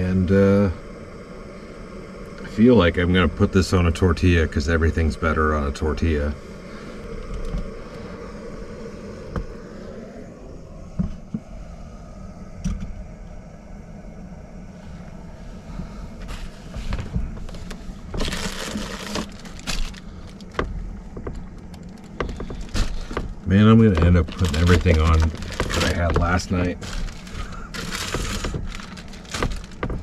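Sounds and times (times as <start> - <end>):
steady low background: 0.0 - 30.0
rustling: 14.8 - 30.0.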